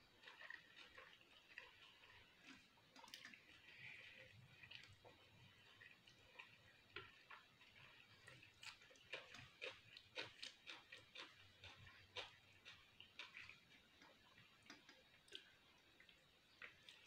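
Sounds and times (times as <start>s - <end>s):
clicks of fingers picking pasta: 8.6s - 17.0s.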